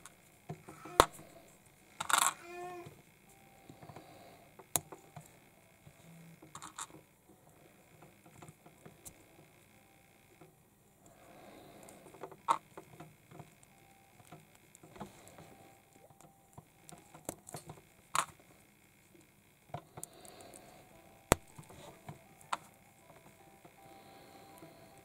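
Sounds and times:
plastic block parts clicking: 0:02.0 - 0:02.4.

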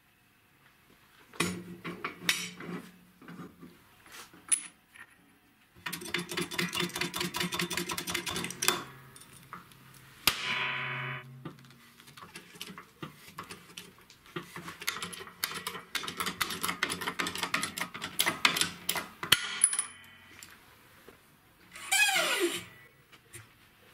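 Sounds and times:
sharp metallic crack: 0:10.2 - 0:11.5
metallic ringing: 0:10.3 - 0:11.6.

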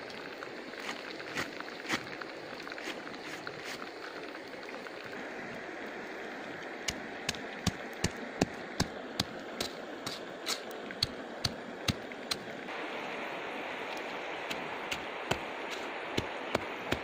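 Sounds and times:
steady background hiss: 0:05.0 - 0:17.0.

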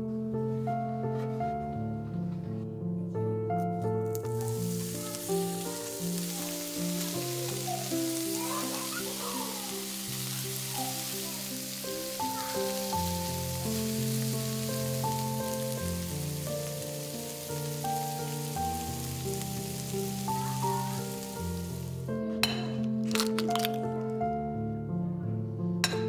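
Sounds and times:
background music with held notes: 0:00.0 - 0:26.0
sausages sizzling in pan: 0:04.1 - 0:24.0.

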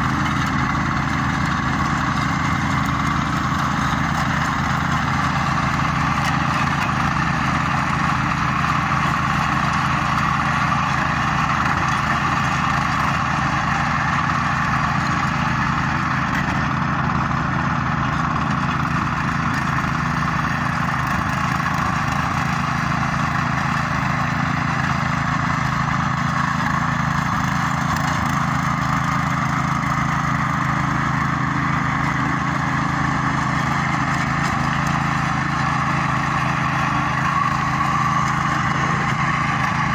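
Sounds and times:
tiller engine running: 0:00.0 - 0:39.9
tines churning soil: 0:00.0 - 0:39.9.

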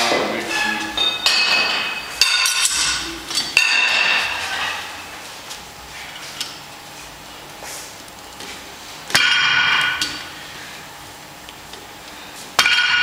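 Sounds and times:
weight plates clanking: 0:00.0 - 0:05.1.

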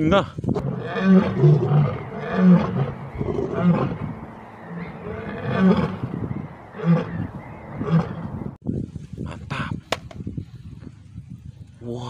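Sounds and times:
lioness roaring: 0:00.6 - 0:08.3.

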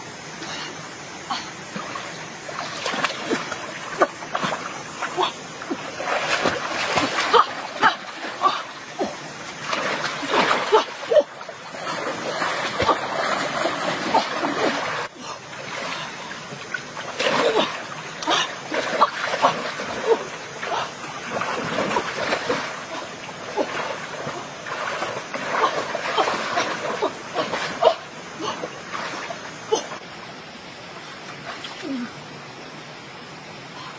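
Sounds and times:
splashing in shallow stream: 0:01.1 - 0:32.2.

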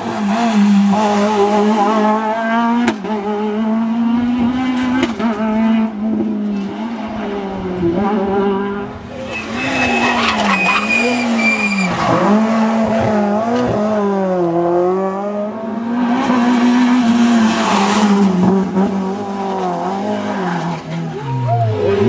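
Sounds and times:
rally car engine revving: 0:00.0 - 0:22.0
tyre squeal: 0:09.1 - 0:12.3.

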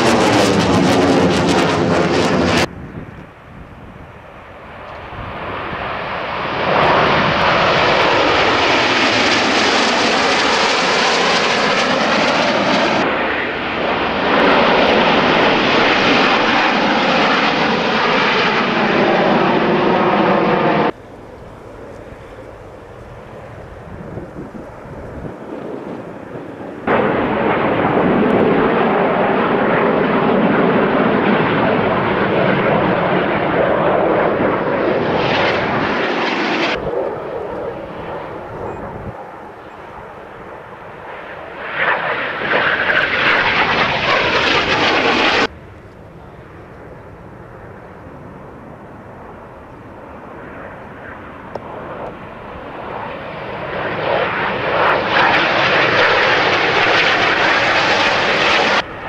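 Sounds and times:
jets flying past: 0:00.0 - 0:59.0.

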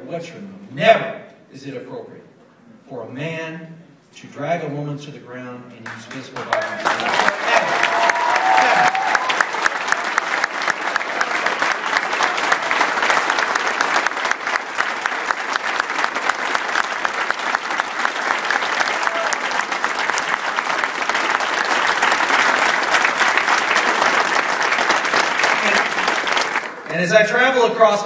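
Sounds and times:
crowd applauding: 0:05.8 - 0:27.1.

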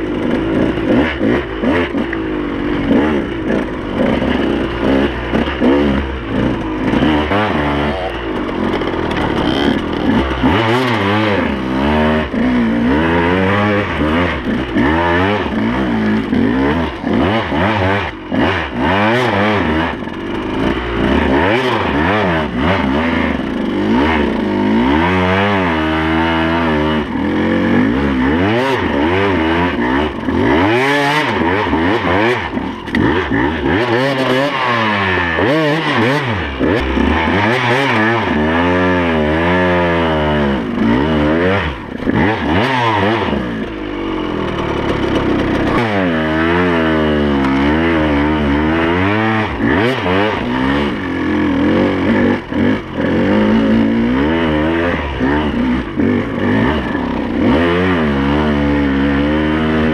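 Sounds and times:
branches scraping a motorbike: 0:00.0 - 0:59.9
two-stroke engine revving: 0:00.0 - 0:59.9.

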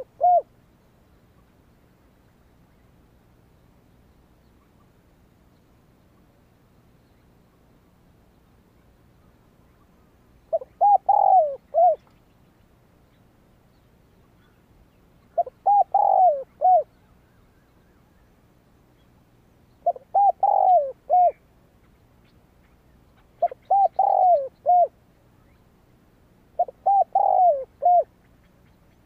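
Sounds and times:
dove cooing: 0:00.0 - 0:00.5, 0:10.5 - 0:12.0, 0:15.4 - 0:17.0, 0:19.8 - 0:21.4, 0:23.2 - 0:25.0, 0:26.6 - 0:28.2.

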